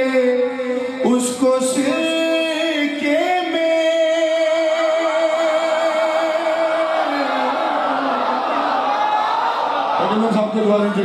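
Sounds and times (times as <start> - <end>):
man singing into microphone: 0.0 - 8.7
crowd voices: 4.7 - 11.0.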